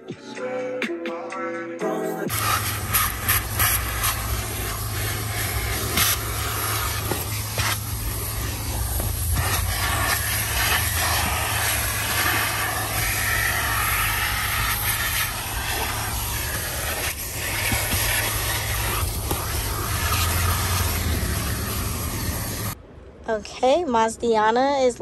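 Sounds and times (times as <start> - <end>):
vacuum sucking grit: 2.3 - 22.8.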